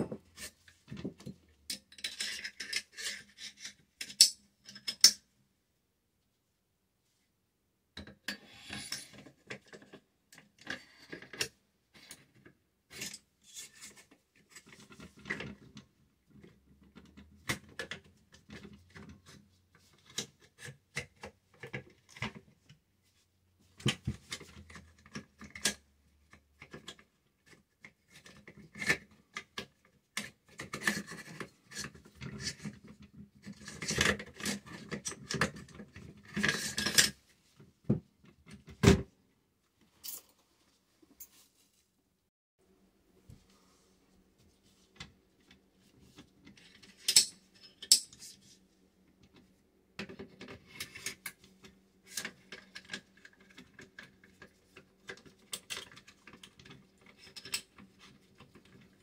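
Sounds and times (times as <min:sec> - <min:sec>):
metal gun parts clicking and scraping: 0:01.7 - 0:05.2, 0:46.5 - 0:48.5.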